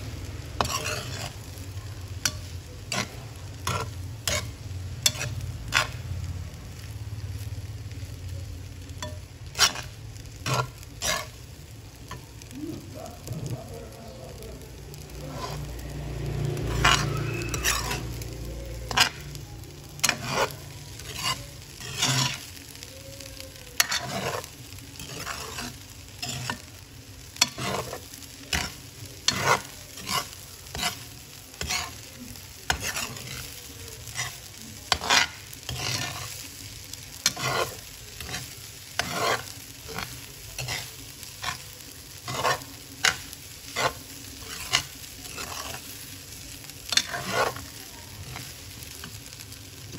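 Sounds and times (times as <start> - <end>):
rice sizzling: 0.0 - 49.9
spatula scraping metal pan: 0.5 - 6.0, 9.0 - 11.4, 15.0 - 19.4, 20.0 - 22.6, 23.8 - 26.8, 27.4 - 32.0, 32.7 - 36.5, 37.2 - 41.6, 42.2 - 45.9, 46.9 - 49.2.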